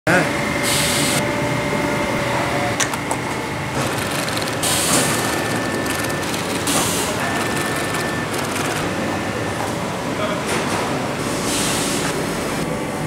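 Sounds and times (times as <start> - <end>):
industrial sewing machine stitching: 3.8 - 8.9.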